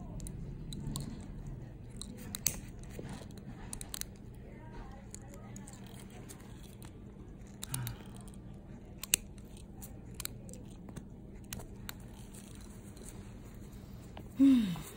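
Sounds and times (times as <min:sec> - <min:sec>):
nail nippers snipping toenail: 0:00.0 - 0:04.3, 0:07.5 - 0:12.7.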